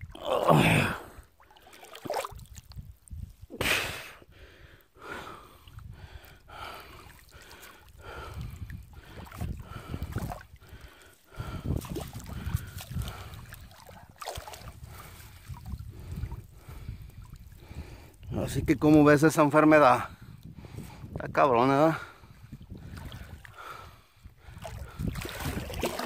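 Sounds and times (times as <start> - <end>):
water sloshing around wading person: 1.2 - 3.4, 6.7 - 17.6, 22.7 - 23.6, 24.4 - 26.0.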